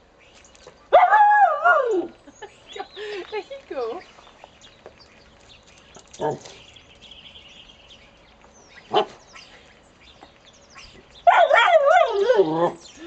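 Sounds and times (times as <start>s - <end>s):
puppy whining howl: 1.0s - 2.2s, 11.3s - 12.8s
puppy yipping: 11.3s - 12.8s.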